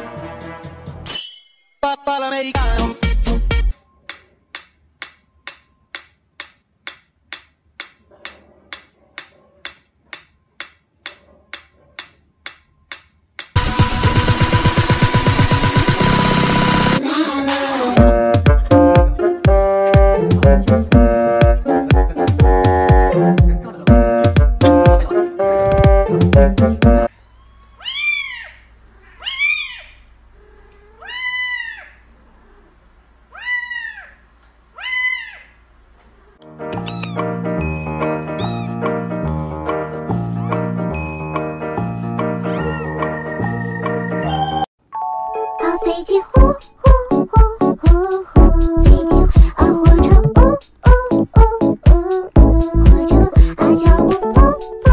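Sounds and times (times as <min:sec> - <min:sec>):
kitten meowing: 0:27.3 - 0:30.0, 0:30.8 - 0:31.9, 0:36.7 - 0:37.3, 0:38.3 - 0:38.9, 0:42.5 - 0:42.9.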